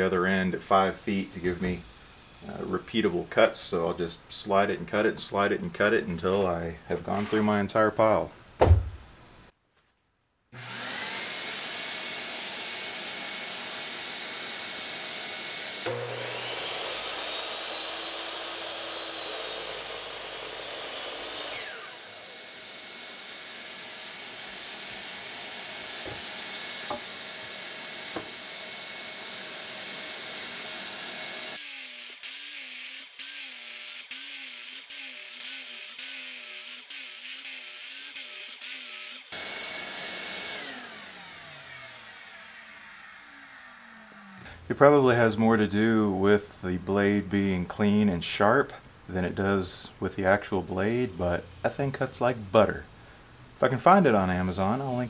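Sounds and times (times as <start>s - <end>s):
miter saw cutting wood: 7.0s - 7.7s, 10.6s - 45.0s
shop vacuum whine: 10.6s - 31.6s, 39.3s - 44.6s.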